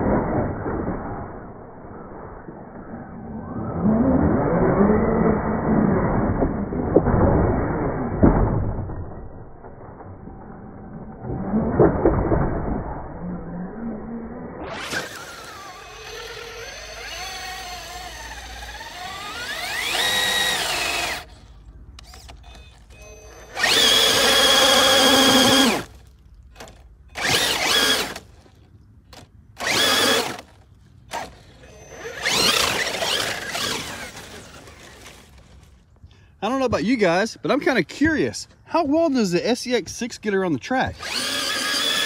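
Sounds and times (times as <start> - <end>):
rc truck motor whining: 12.8 - 35.8, 41.0 - 42.0.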